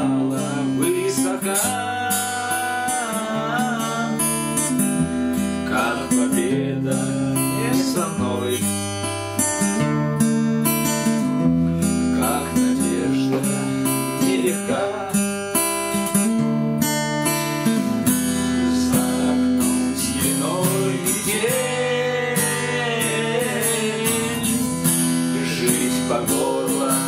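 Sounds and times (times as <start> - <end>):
man singing: 0.0 - 9.0, 11.8 - 15.4, 18.1 - 27.0
acoustic guitar strumming: 0.0 - 27.0.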